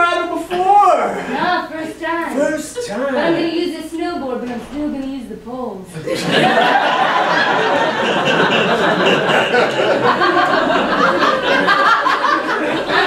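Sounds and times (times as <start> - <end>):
audience laughing: 6.0 - 13.0.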